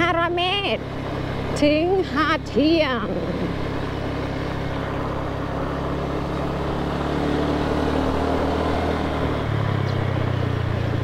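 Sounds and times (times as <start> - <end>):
road noise: 0.0 - 11.0
vehicle engine running: 0.0 - 11.0.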